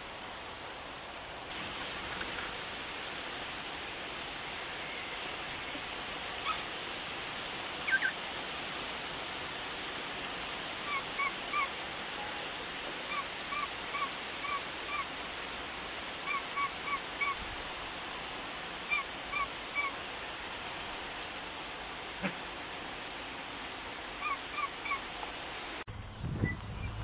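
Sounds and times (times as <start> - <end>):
background hiss: 0.0 - 27.0
cockatiel chirping: 7.9 - 8.2.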